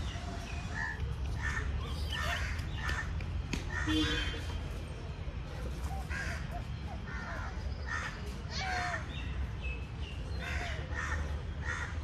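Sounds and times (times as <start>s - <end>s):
crows cawing: 6.1s - 6.5s, 10.4s - 12.0s.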